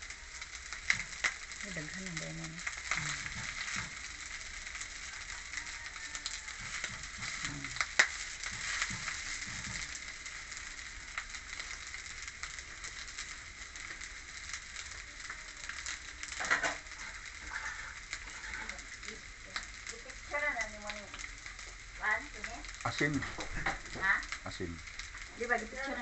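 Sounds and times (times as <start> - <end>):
rice sizzling in a pan: 0.0 - 26.0.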